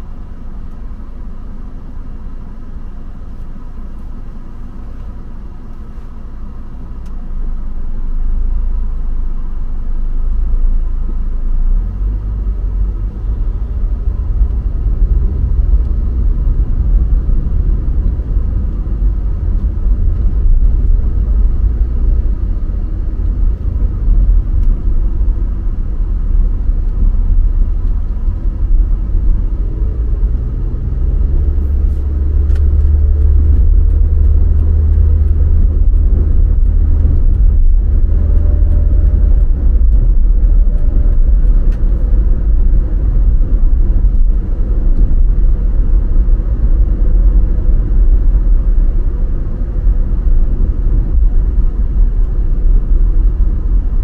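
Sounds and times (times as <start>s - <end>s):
car engine and tyre rumble: 0.0s - 54.0s.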